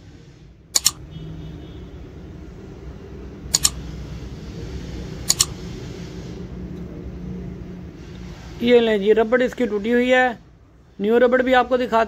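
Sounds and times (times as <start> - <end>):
small metal parts clicking: 0.8 - 1.0, 3.6 - 3.8, 5.3 - 5.5.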